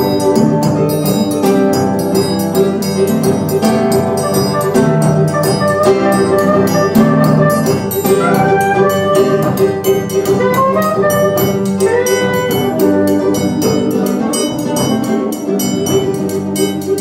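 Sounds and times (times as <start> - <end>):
acoustic guitar chords: 0.0 - 17.0
percussion beat: 0.0 - 17.0
soprano saxophone melody: 4.2 - 14.8.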